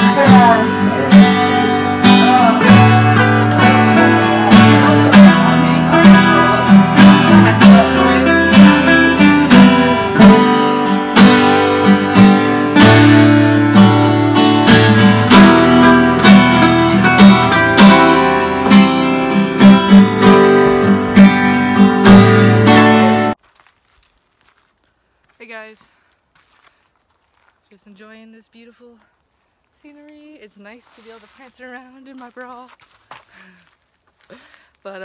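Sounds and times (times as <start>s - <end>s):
acoustic guitar music: 0.0s - 23.4s.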